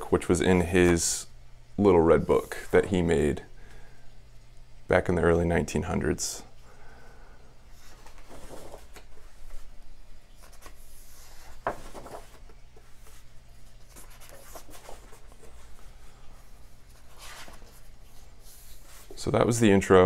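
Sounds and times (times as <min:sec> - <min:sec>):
book pages turning: 0:07.7 - 0:09.7, 0:10.3 - 0:15.8, 0:16.4 - 0:19.2
sharp page flap: 0:11.5 - 0:12.5.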